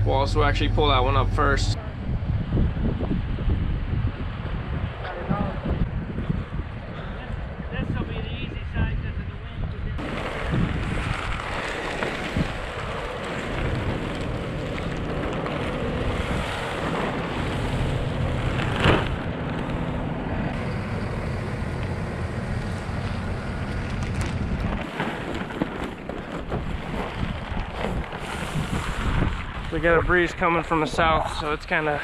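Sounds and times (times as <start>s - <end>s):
low engine hum: 0.0s - 6.8s, 10.0s - 24.8s
wind buffeting microphone: 0.0s - 32.0s.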